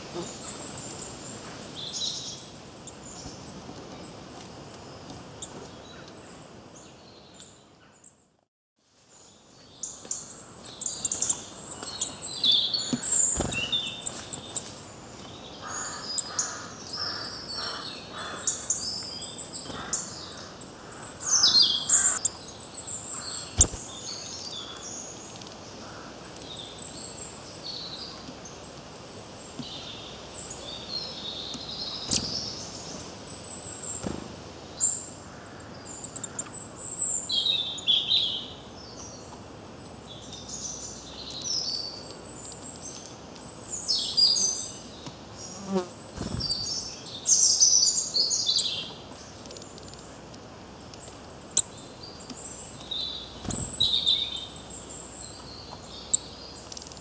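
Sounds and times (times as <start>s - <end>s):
birds chirping and trilling: 9.8s - 28.6s, 29.3s - 39.3s, 40.1s - 50.1s, 51.0s - 57.0s.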